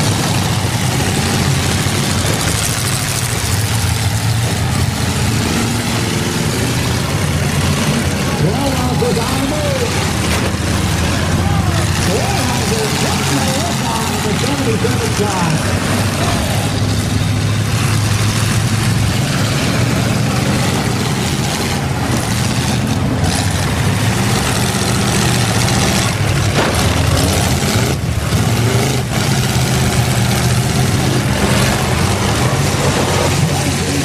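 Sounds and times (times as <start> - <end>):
car engines revving: 0.0 - 34.0.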